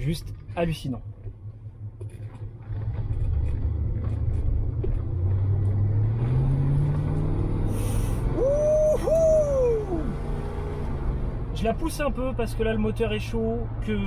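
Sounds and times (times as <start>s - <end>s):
car engine rumble accelerating: 0.0s - 14.0s
man saying ooh: 8.4s - 10.2s.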